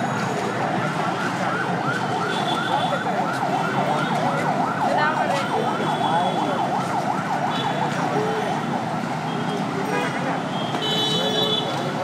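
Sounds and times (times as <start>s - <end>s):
busy street traffic: 0.0s - 12.0s.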